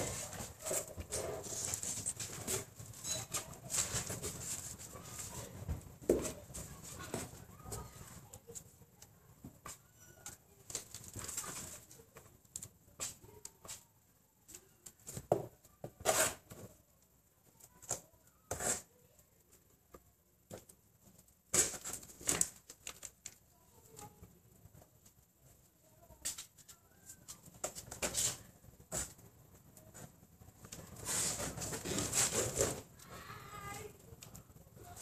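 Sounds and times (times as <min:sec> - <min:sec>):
plastic clicking and rustling: 0:20.5 - 0:24.9.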